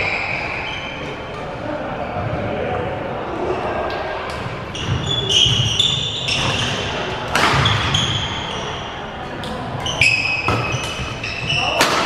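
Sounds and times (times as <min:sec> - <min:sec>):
sneakers squeaking on floor: 0:00.0 - 0:01.2, 0:04.3 - 0:12.0
racket hitting shuttlecock: 0:06.3 - 0:08.6, 0:09.4 - 0:12.0.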